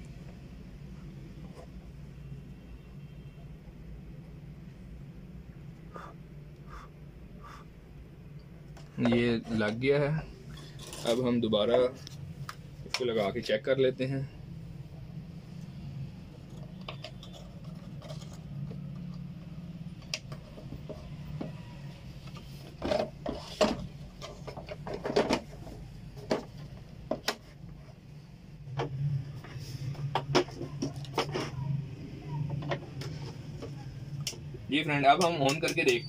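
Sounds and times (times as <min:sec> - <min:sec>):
steady low hum: 0:00.0 - 0:35.7
plastic parts clicking and knocking: 0:16.4 - 0:21.6, 0:22.2 - 0:27.6, 0:29.9 - 0:31.6.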